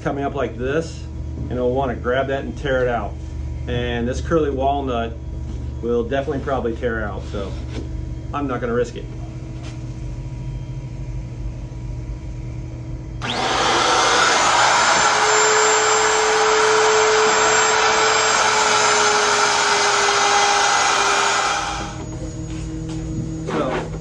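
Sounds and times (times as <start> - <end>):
exhaust fan hum: 0.0 - 24.0
handheld router running: 13.2 - 22.2.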